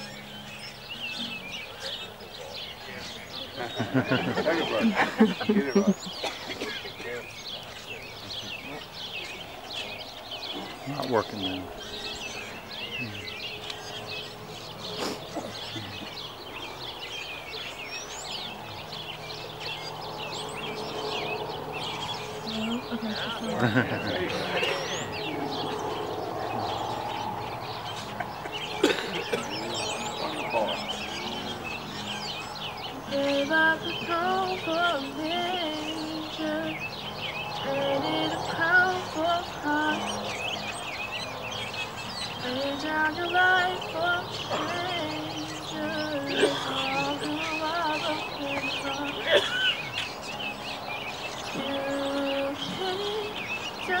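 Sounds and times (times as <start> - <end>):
small birds chirping: 0.0 - 54.0
woman singing: 22.5 - 23.8, 33.0 - 37.0, 37.6 - 40.6, 42.4 - 49.5, 51.5 - 54.0.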